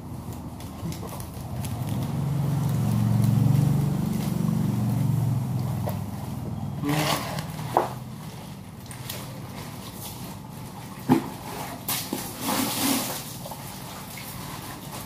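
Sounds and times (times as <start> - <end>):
vehicle engine passing by: 1.0 - 8.4.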